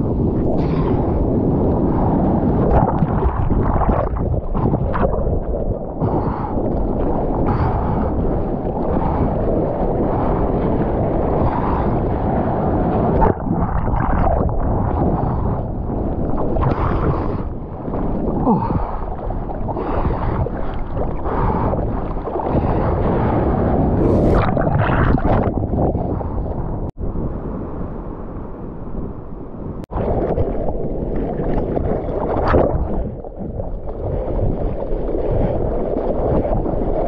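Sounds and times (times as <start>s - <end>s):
sea water rushing and splashing: 0.0s - 27.3s, 29.8s - 37.0s
wind buffeting microphone: 0.0s - 37.0s.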